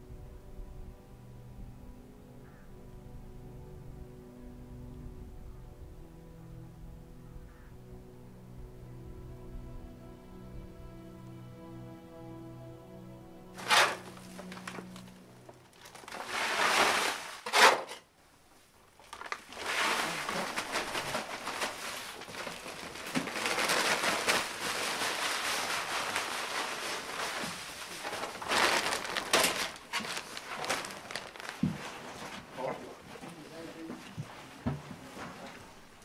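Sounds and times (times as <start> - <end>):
dry feed pouring into metal trough: 13.6 - 14.8, 15.8 - 17.9, 19.2 - 31.4
plastic sack rustling: 13.6 - 18.0, 18.9 - 33.4.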